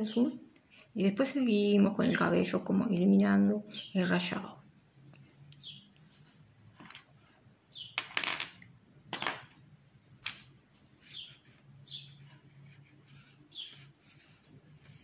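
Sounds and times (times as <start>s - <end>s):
pencil scratching on paper: 11.0s - 15.0s.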